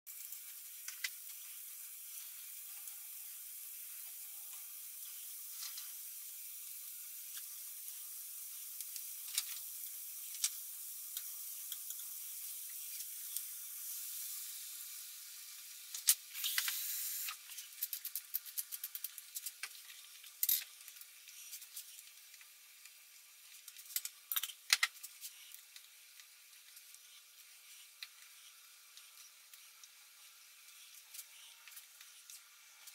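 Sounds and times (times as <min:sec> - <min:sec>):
vegetables sizzling in a frying pan: 0:00.1 - 0:32.9.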